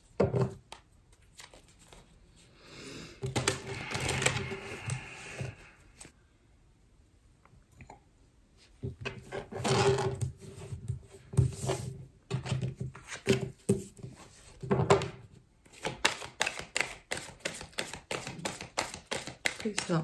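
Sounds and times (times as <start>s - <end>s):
cards shuffled by hand: 1.1s - 2.2s, 3.3s - 5.1s, 15.7s - 20.0s.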